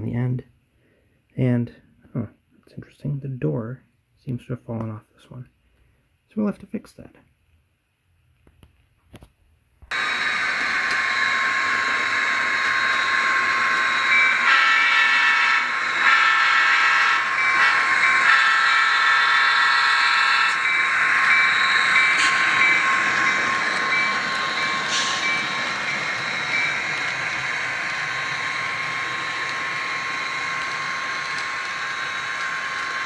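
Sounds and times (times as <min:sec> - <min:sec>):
running train drone: 0:09.9 - 0:33.0
diesel locomotive horn blasts: 0:14.4 - 0:19.2.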